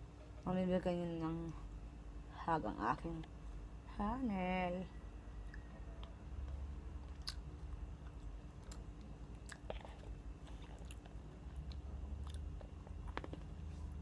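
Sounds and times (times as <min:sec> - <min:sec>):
person chewing crunchy snack: 0:07.0 - 0:13.9.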